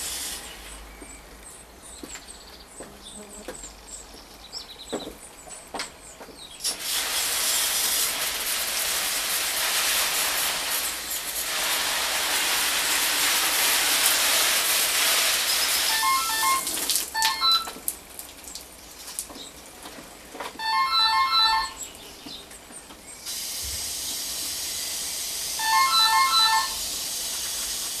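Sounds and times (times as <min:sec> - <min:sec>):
hose nozzle spraying water: 0:00.0 - 0:00.7, 0:06.6 - 0:18.3, 0:23.2 - 0:28.0.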